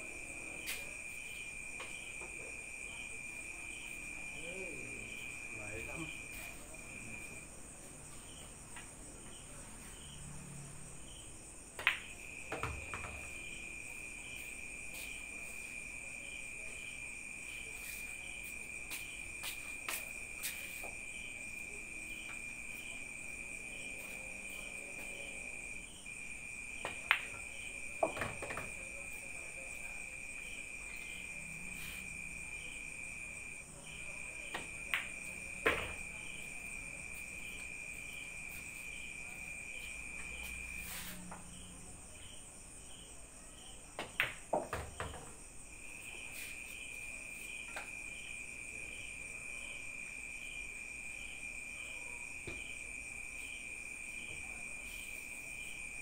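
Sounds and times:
crickets trilling: 0.0s - 56.0s.

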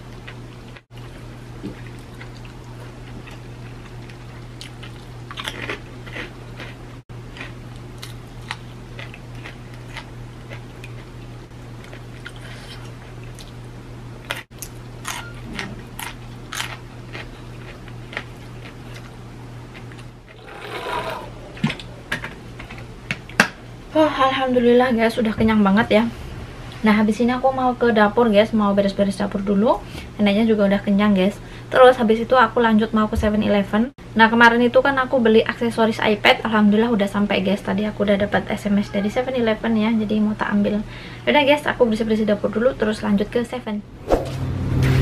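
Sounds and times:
steady low hum: 0.0s - 45.0s
person chewing food: 0.2s - 13.6s, 14.2s - 20.5s.

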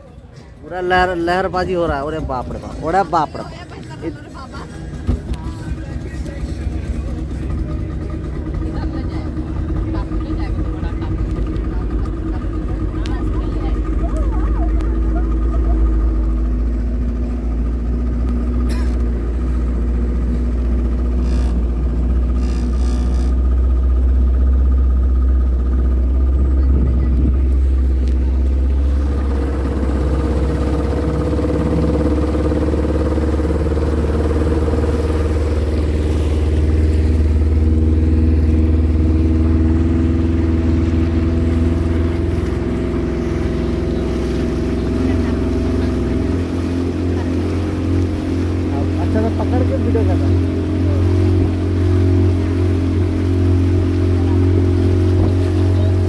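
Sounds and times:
boat wake hissing: 0.0s - 56.0s
outboard motor droning: 0.0s - 56.0s.

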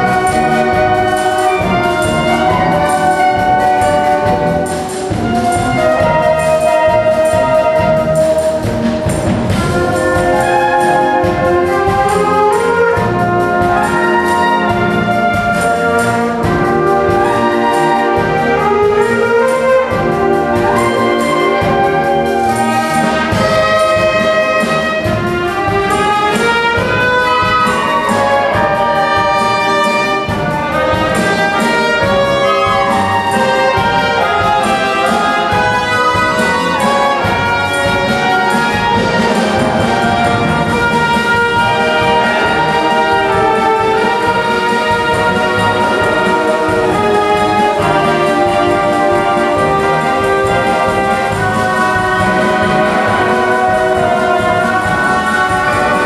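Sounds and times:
brass: 0.0s - 56.0s
flutes: 0.0s - 56.0s
saxophones: 0.0s - 56.0s.

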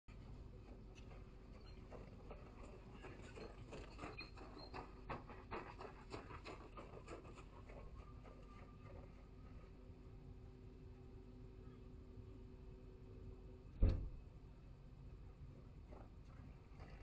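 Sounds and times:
running footsteps on snow: 0.2s - 9.9s, 15.8s - 17.0s
faint electrical hum: 6.7s - 17.0s.

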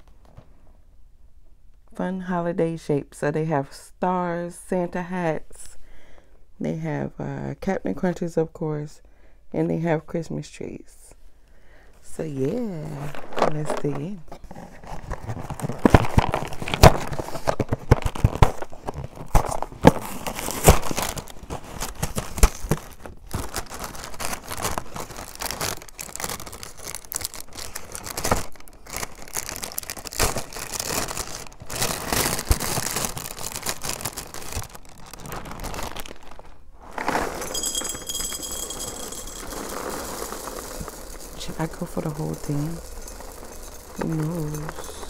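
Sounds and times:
plastic bag crinkling: 14.9s - 45.0s
cereal poured into glass bowl: 36.9s - 45.0s.

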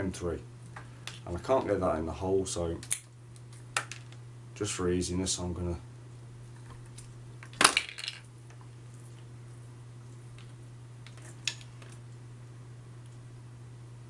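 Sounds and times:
small hard objects clattering: 7.5s - 8.3s.

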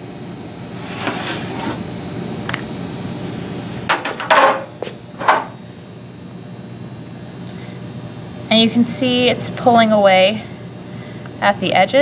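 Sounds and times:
knocks and clatters on wooden table: 3.9s - 5.6s.

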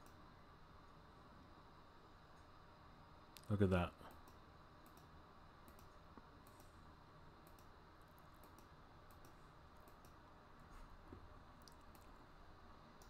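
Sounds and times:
small irregular clicks: 0.0s - 0.2s, 3.3s - 6.8s, 7.4s - 10.2s, 11.6s - 12.2s
faint room hiss: 0.0s - 13.0s.

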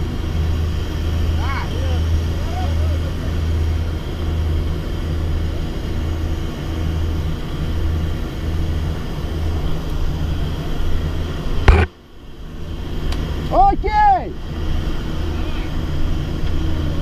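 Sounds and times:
aircraft engines droning in cabin: 0.0s - 17.0s.

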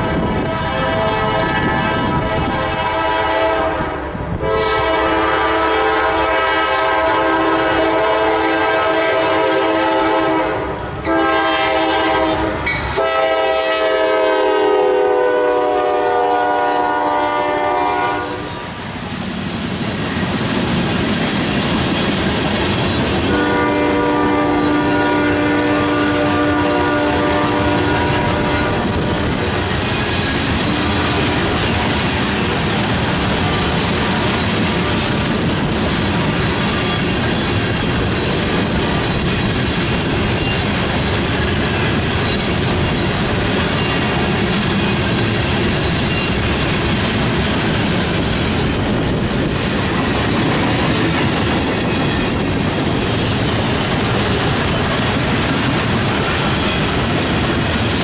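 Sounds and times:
locomotive air horn blasts: 0.0s - 18.7s, 23.3s - 29.2s.

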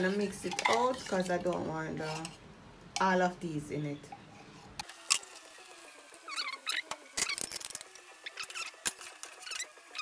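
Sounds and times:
metal spoon scraping pot: 0.0s - 2.4s.

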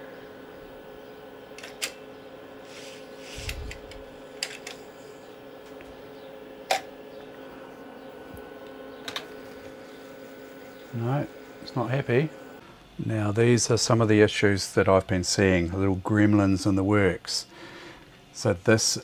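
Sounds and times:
electrical hum: 0.0s - 19.0s
floppy disk drive clicks: 3.4s - 4.9s, 8.3s - 9.8s.

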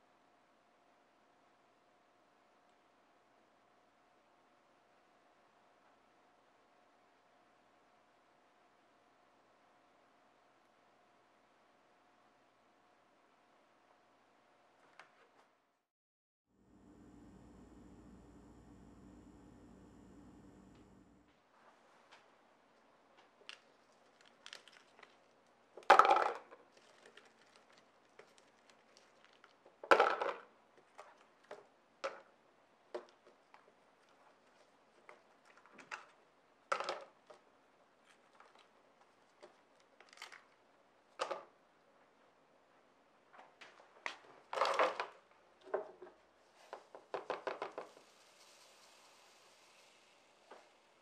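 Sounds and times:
ice cubes cracking and ticking: 23.4s - 25.3s
plastic cup knocks and clatter: 25.8s - 27.2s, 29.8s - 32.3s, 36.7s - 37.2s, 46.7s - 48.0s
soft steady hiss: 47.7s - 51.0s
small ticks of poured granules: 47.9s - 50.3s.

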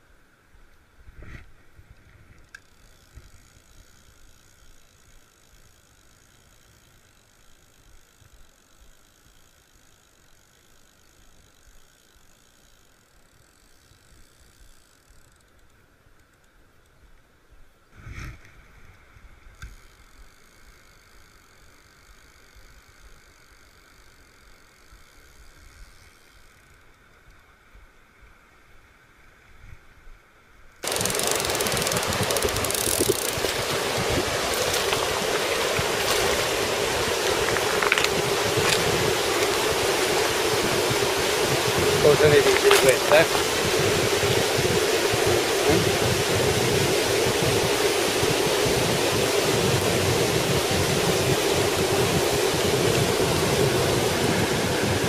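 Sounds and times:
fishing reel gears whirring: 2.4s - 16.9s, 19.5s - 27.4s, 30.8s - 55.0s
mountain stream rushing: 30.8s - 55.0s.

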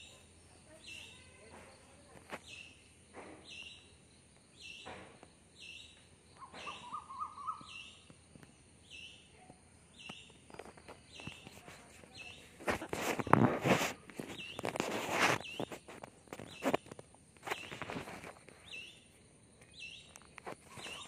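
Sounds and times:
bird calling: 5.6s - 8.2s, 19.7s - 21.0s
fingers rustling through hair: 10.6s - 18.6s.

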